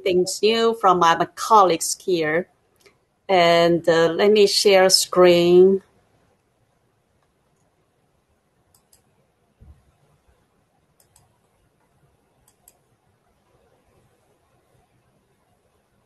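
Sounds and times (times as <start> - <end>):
faint computer mouse clicks: 8.7 - 9.1, 11.0 - 11.4, 12.4 - 12.9.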